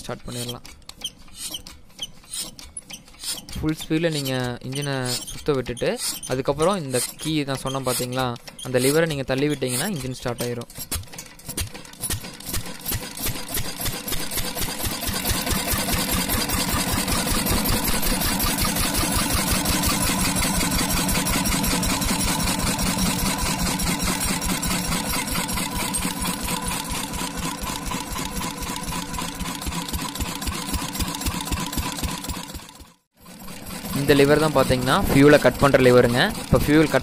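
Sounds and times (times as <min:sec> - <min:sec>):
diesel engine knocking rhythmically: 0:11.5 - 0:37.0.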